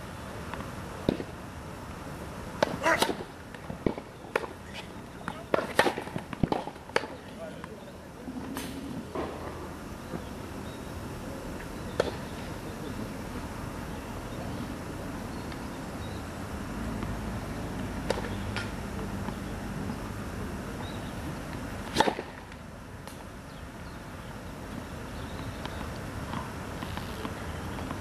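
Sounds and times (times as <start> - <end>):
tennis ball pops: 0.5 - 1.3, 5.2 - 7.2, 18.0 - 18.7.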